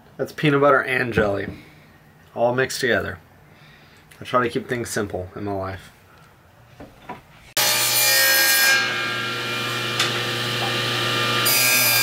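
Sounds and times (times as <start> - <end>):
table saw cutting wood: 7.6 - 12.0.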